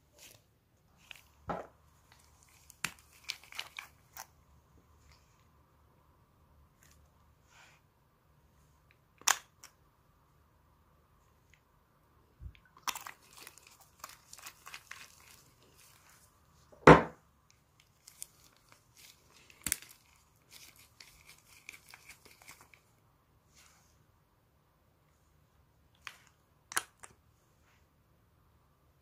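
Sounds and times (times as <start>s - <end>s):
crinkling handling noise: 0.0s - 5.5s, 12.5s - 16.8s, 17.5s - 24.0s.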